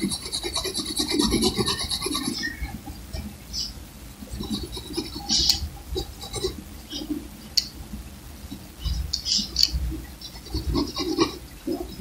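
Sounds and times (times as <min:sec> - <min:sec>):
pencil scratching on paper: 0:00.0 - 0:02.5, 0:04.4 - 0:07.1, 0:10.3 - 0:11.9.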